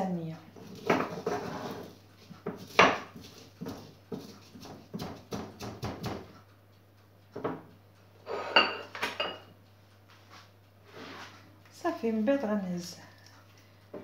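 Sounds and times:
pestle knocking in mortar: 0.6s - 1.4s, 2.4s - 6.4s.

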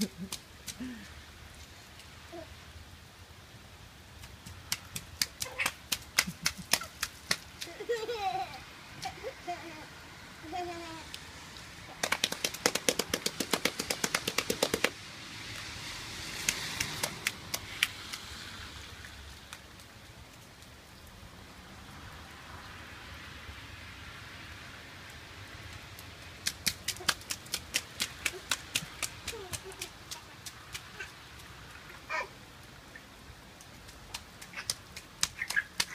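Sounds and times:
bare feet slapping wet concrete: 0.0s - 1.0s, 4.2s - 7.9s, 11.9s - 15.0s, 16.2s - 18.4s, 26.2s - 31.7s, 33.5s - 35.9s.

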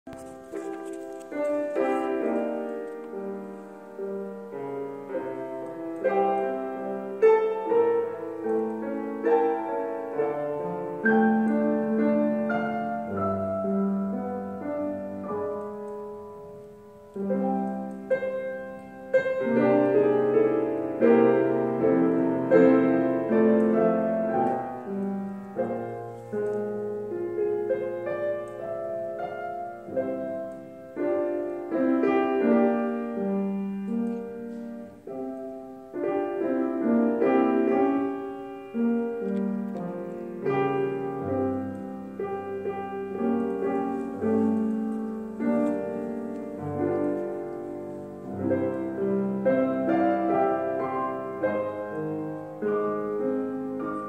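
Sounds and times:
solo piano playing chords: 0.1s - 54.0s.

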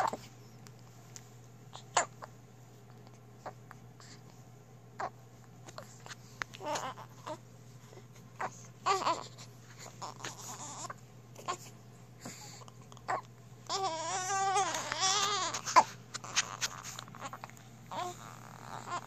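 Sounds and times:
baby crying: 6.6s - 7.4s, 8.4s - 11.6s, 13.1s - 19.0s.

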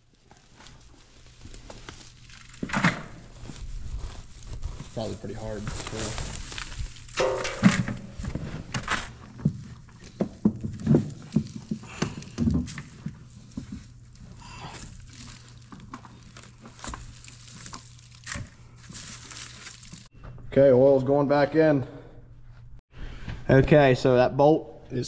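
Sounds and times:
straw rustling and crackling: 0.0s - 20.1s.

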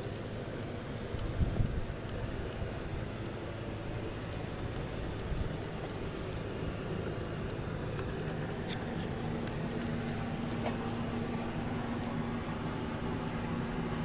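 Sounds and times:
steady machine hum: 0.0s - 14.0s.

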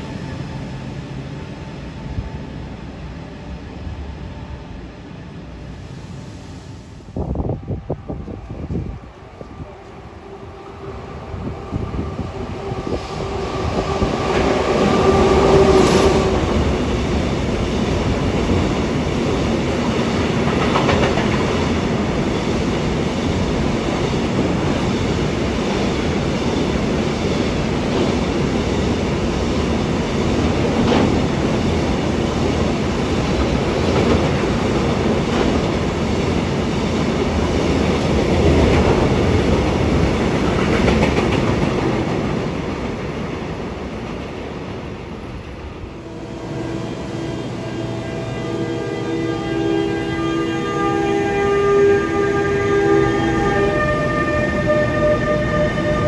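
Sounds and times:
electric locomotive whine: 0.0s - 56.0s.

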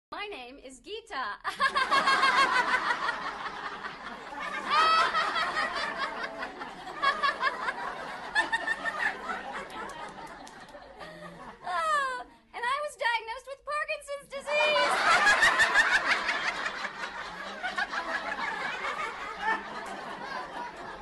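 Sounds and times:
woman laughing heartily: 1.5s - 12.2s.

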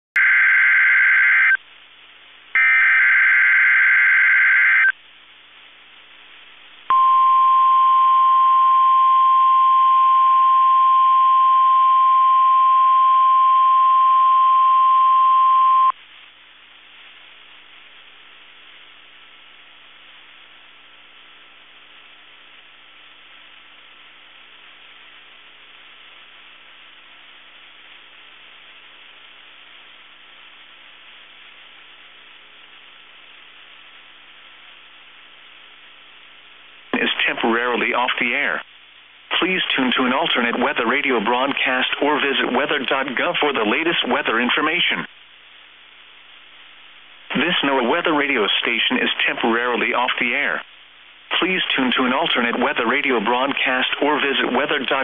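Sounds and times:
steady warning alarm tone: 0.2s - 1.6s, 2.6s - 4.9s
faint radio hiss: 0.2s - 55.0s.

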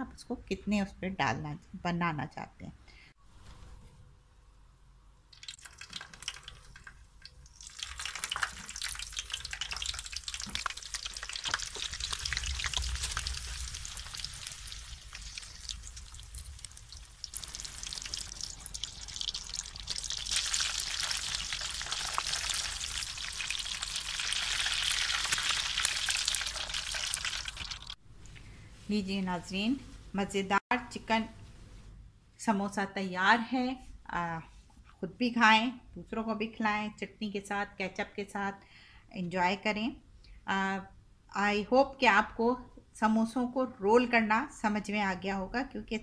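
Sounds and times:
oil sizzling and crackling: 5.3s - 28.0s.

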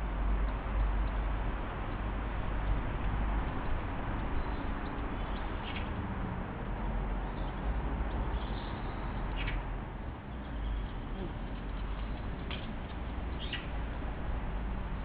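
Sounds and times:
faint high bird chirp: 8.3s - 9.6s, 13.3s - 13.8s.

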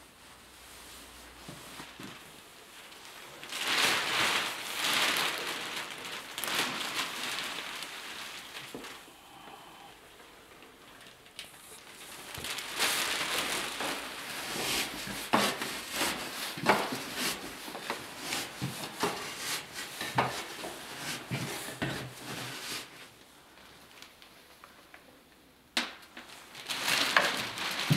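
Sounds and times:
wooden pole tamping sawdust: 13.8s - 22.9s.

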